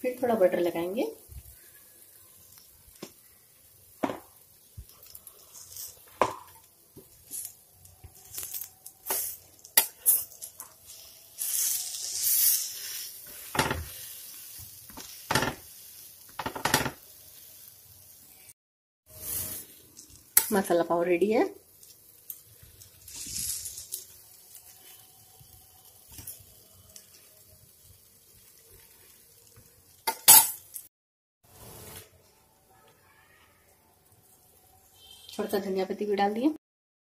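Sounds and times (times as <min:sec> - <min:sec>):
bread sizzling on a griddle: 0:00.0 - 0:32.4, 0:33.0 - 0:36.5
spatula scraping a griddle: 0:04.9 - 0:06.3, 0:07.1 - 0:17.5, 0:19.1 - 0:20.4, 0:21.8 - 0:25.5.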